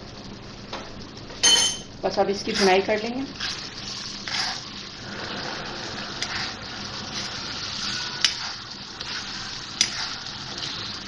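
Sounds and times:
food sizzling in oil: 0.1s - 11.0s
metal spoon clinking against pan: 1.4s - 1.9s.

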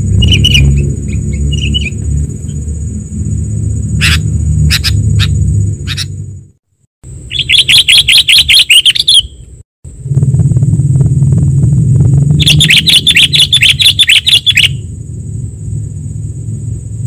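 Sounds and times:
low rumble: 0.0s - 6.6s, 9.9s - 17.0s
bird chirps and chatter: 0.2s - 2.0s, 4.0s - 6.1s, 7.3s - 9.4s, 12.4s - 14.8s
thin high whine: 9.9s - 17.0s.

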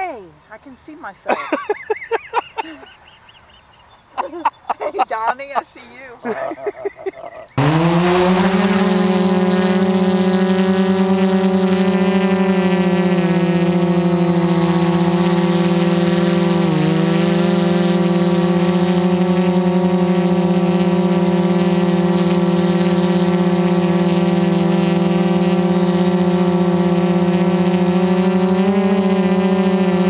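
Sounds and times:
drone propellers whining: 6.3s - 30.0s.

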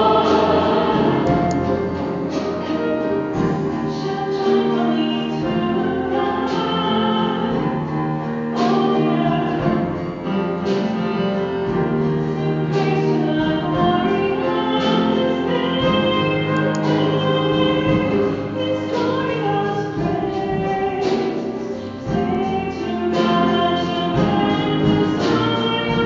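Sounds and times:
church ensemble singing with band: 0.0s - 26.0s.

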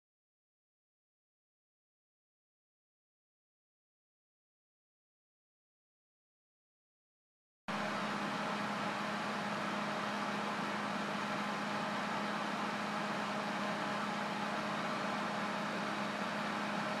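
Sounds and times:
mechanical hum with hiss: 7.7s - 17.0s.

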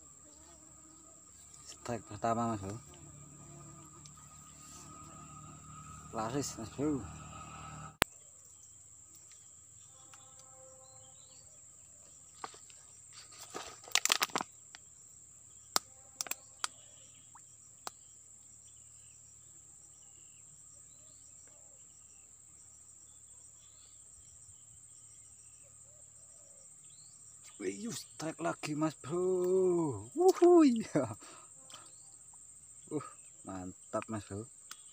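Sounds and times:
high-pitched insect drone: 0.0s - 8.0s.

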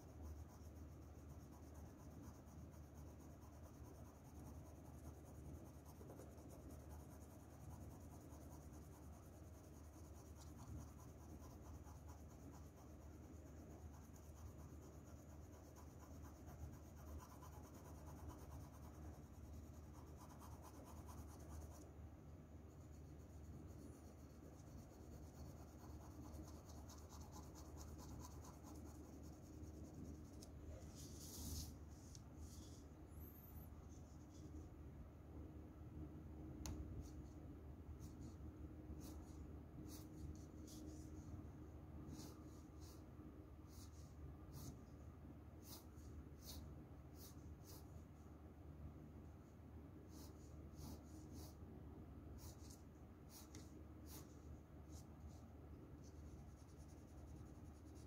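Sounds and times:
pencil scratching on paper: 0.0s - 21.8s, 22.7s - 31.7s, 45.6s - 47.9s, 50.1s - 51.6s, 52.4s - 55.4s, 56.0s - 58.0s.

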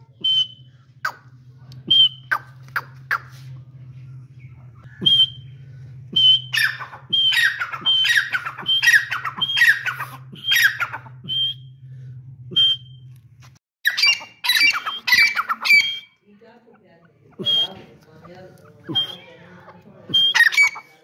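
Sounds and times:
francolin calling harshly: 6.2s - 11.0s, 13.8s - 16.2s, 17.0s - 21.0s.

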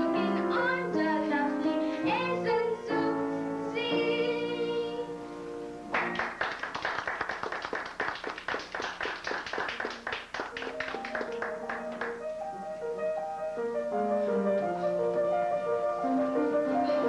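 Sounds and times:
piano playing: 0.0s - 7.2s, 9.9s - 17.0s
audience applauding: 5.9s - 12.2s.

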